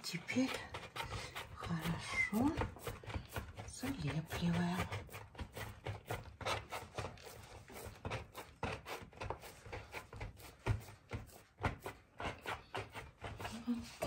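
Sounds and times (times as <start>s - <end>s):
hands pressing pie dough: 0.0s - 14.0s.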